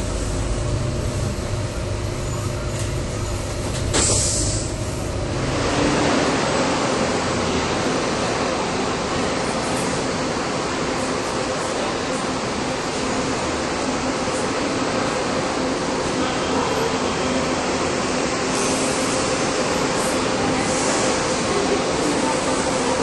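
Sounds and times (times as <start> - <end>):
bus interior rumble: 0.0 - 23.0
echoing bus terminal noise: 0.0 - 23.0
air hiss: 3.9 - 4.8, 18.5 - 21.5.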